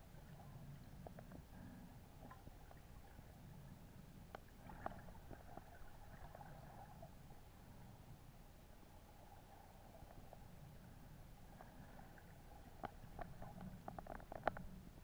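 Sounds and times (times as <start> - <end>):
low underwater rumble: 0.0 - 15.0
small clicks: 12.8 - 14.8.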